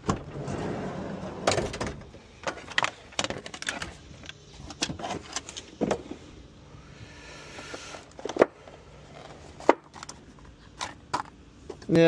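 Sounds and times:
van door and tray rattling: 0.0s - 6.2s.

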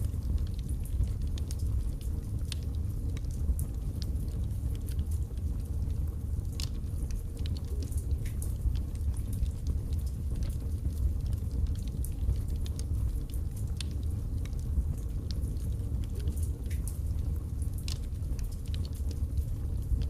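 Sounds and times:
logs crackling and popping: 0.0s - 20.0s.

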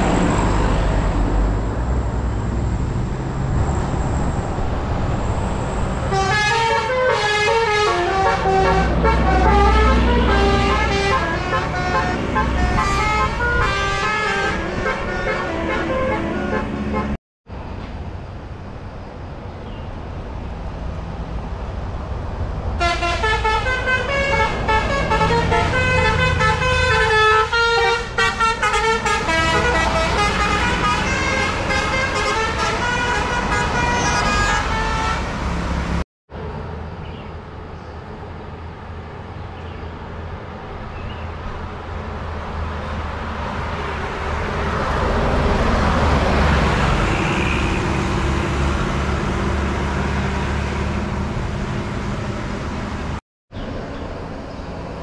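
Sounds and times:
bus engine: 0.0s - 55.0s
bus passing by: 0.0s - 55.0s
musical air horn tune: 6.1s - 17.2s, 22.8s - 35.3s.

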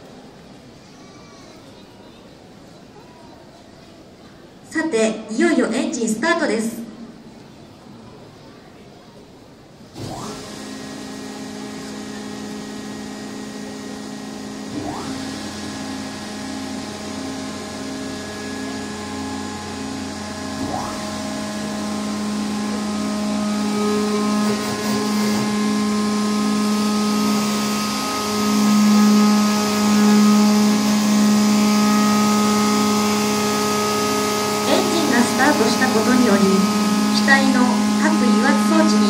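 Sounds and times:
jet engine hum: 10.1s - 39.0s.

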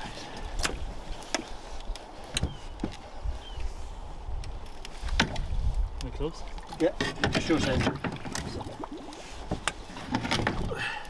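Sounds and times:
knocks and clunks of motor handling: 7.0s - 8.6s, 9.4s - 10.7s.

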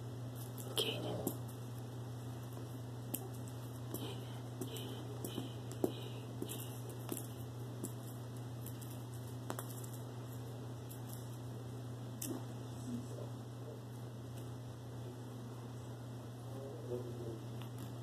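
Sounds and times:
steady low hum: 0.0s - 18.0s
cat playing with toy on carpet: 0.3s - 12.5s.

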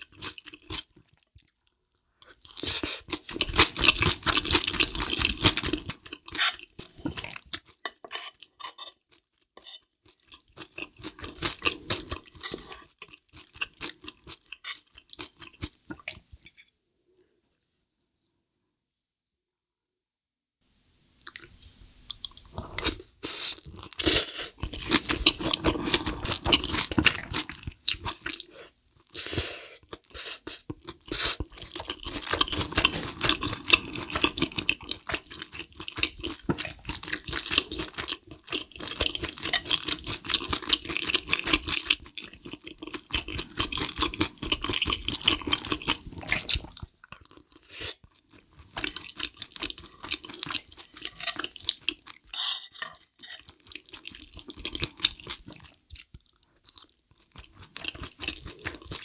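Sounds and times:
chewing and wet mouth sounds: 0.0s - 16.4s, 21.2s - 29.2s, 29.8s - 52.3s, 53.0s - 59.0s
cutlery scraping a plate: 9.6s - 9.9s, 52.3s - 53.5s.

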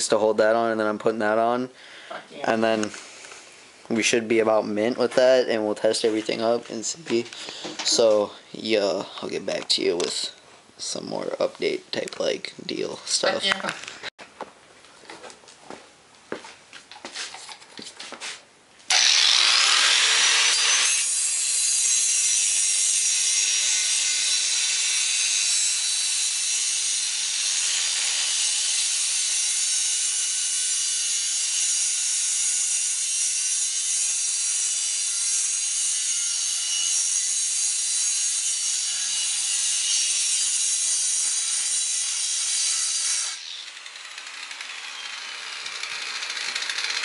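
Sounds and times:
angle grinder cutting steel: 18.9s - 47.0s.

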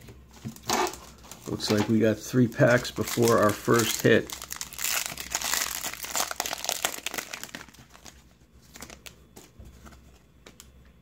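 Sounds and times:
wrapper crinkling and tearing: 0.5s - 9.2s.

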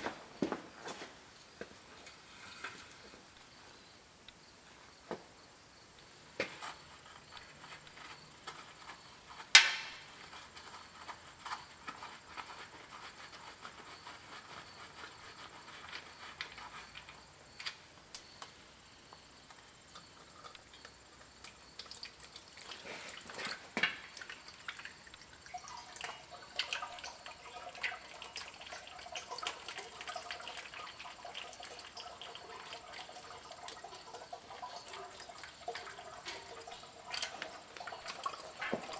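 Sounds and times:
oil dripping into a pan: 19.5s - 38.9s.

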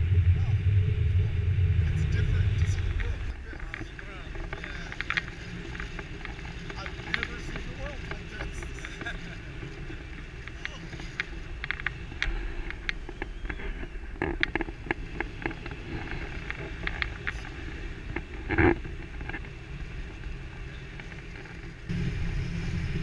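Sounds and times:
wind buffeting microphone: 0.0s - 23.0s
small clicks: 2.7s - 19.5s.

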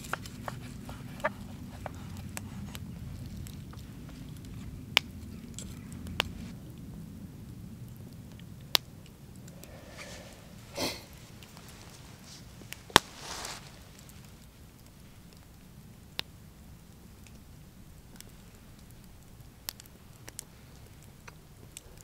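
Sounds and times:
soft rustle: 0.0s - 6.6s, 9.3s - 15.6s
campfire crackling: 0.0s - 22.0s
fire popping: 0.0s - 22.0s
low rumble: 2.2s - 12.9s.

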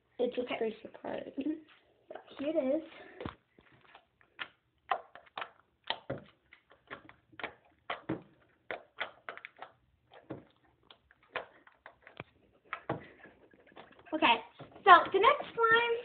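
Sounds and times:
slime squished by hand: 3.3s - 13.0s.

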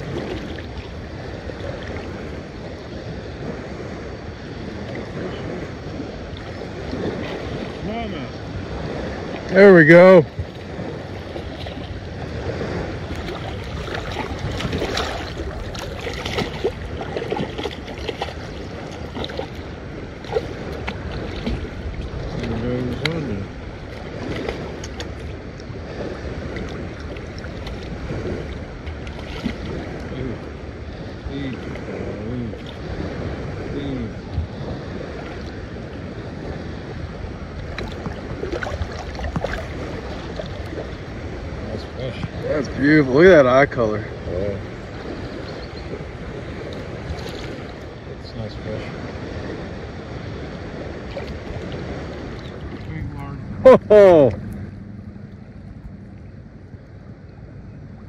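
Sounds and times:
small waves lapping: 0.0s - 58.0s
water splashes: 0.0s - 58.0s
wind on microphone: 0.0s - 58.0s
fish splashing at surface: 13.2s - 23.1s.

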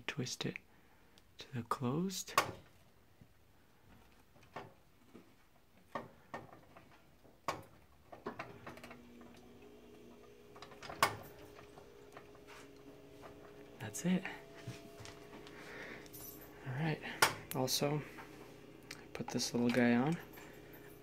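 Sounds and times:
faint steady hum: 8.1s - 21.0s.

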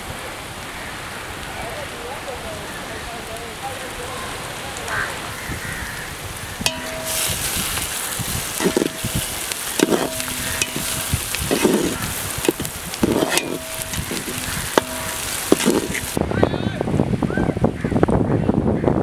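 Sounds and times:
onions sizzling in oil: 4.9s - 16.2s
metal spatula scraping a pot: 6.7s - 16.2s
pot ringing: 6.7s - 16.2s.

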